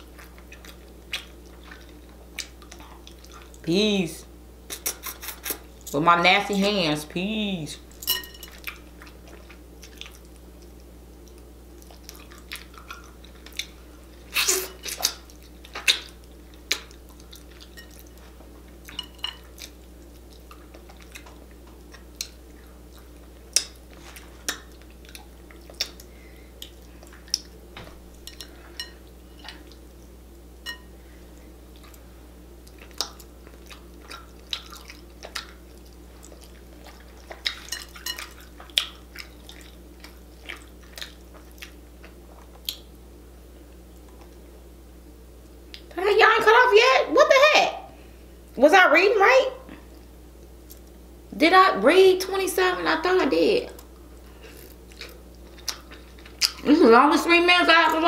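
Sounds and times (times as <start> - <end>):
wet chewing: 0.0 - 3.6, 8.5 - 30.1, 32.6 - 43.0, 53.7 - 56.8
steady low hum: 0.0 - 58.0.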